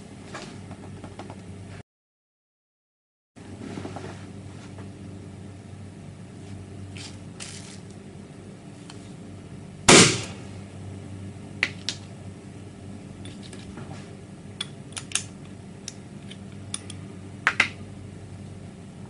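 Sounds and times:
low hum: 0:03.4 - 0:19.0
metal shell clicks: 0:14.6 - 0:17.7.

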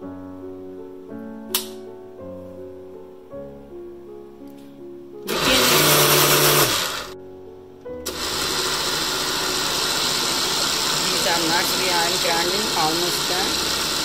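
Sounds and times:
soft piano music: 0:00.0 - 0:05.3, 0:07.1 - 0:08.2
blender grinding: 0:05.2 - 0:07.2, 0:08.0 - 0:14.0.

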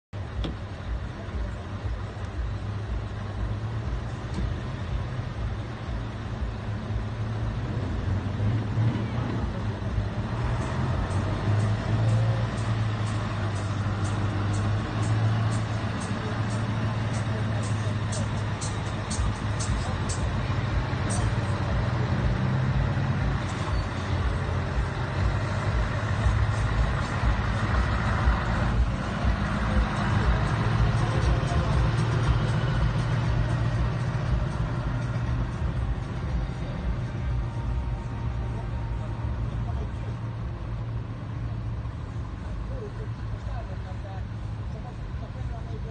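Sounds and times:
truck diesel engine rumbling: 0:00.1 - 0:45.9.

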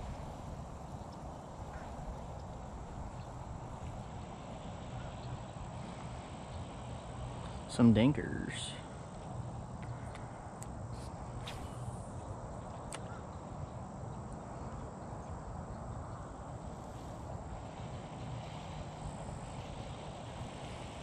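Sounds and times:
even hiss: 0:00.0 - 0:13.2, 0:16.4 - 0:21.0
low hum: 0:00.0 - 0:21.0
faint clicks: 0:09.1 - 0:10.8, 0:12.6 - 0:13.3.

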